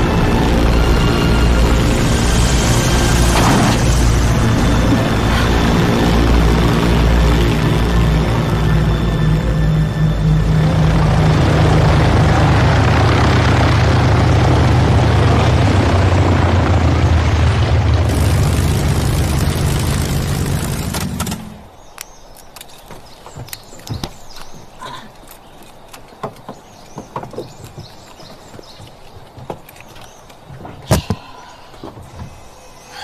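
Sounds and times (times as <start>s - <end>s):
propeller aircraft engine running: 0.0s - 21.9s.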